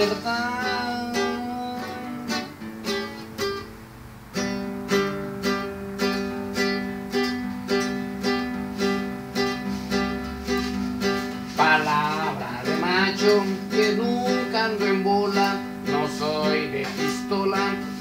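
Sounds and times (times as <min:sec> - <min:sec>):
guitar strumming: 0:00.0 - 0:18.0.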